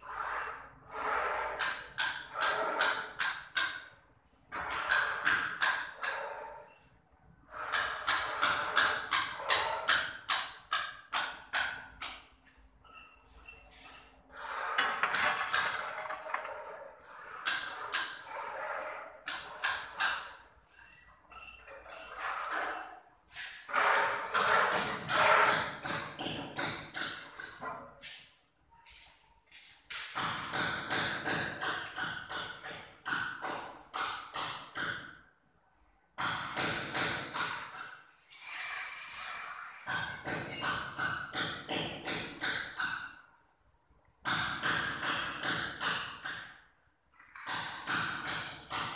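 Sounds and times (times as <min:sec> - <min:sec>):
rubbing scrape: 0:00.0 - 0:03.2, 0:13.3 - 0:19.6, 0:21.8 - 0:25.7, 0:38.3 - 0:39.8
sharp knocks on hard surface: 0:24.3 - 0:27.8, 0:30.0 - 0:35.1, 0:39.9 - 0:43.1, 0:44.2 - 0:46.5.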